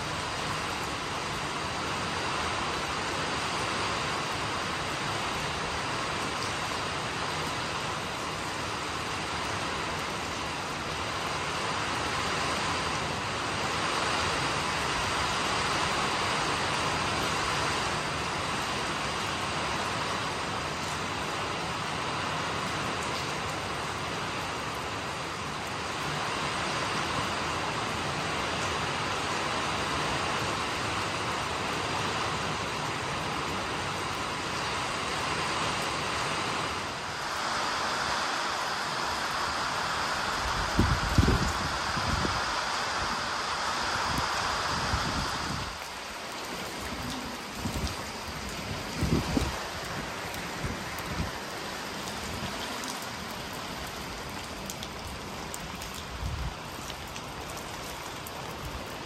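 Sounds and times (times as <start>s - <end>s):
heavy rain on water and leaves: 0.0s - 59.0s
wind: 0.0s - 59.0s
wind gusts buffeting microphone: 37.1s - 45.9s, 46.8s - 51.4s
rain drop ticks: 45.1s - 59.0s.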